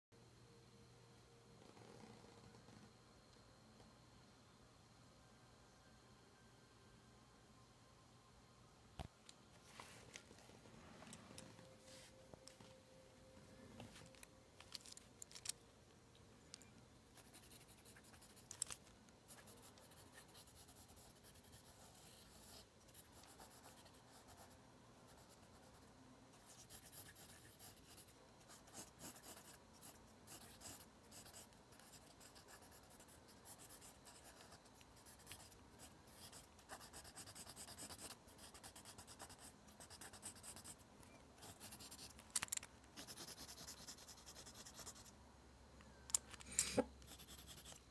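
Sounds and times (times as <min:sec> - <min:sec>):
pencil scratching on paper: 0:19.3 - 0:40.8, 0:41.4 - 0:42.1, 0:43.0 - 0:45.1, 0:47.0 - 0:47.8.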